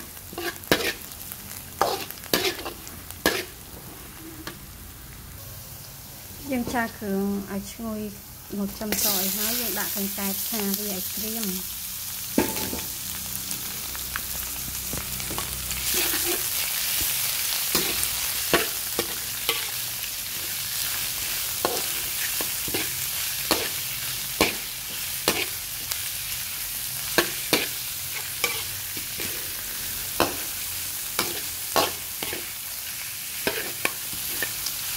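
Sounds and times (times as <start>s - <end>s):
frying in hot oil: 0.0s - 34.9s
spatula scraping and knocking wok: 0.2s - 1.2s, 1.8s - 4.6s, 12.3s - 13.0s, 14.8s - 26.1s, 27.0s - 34.9s.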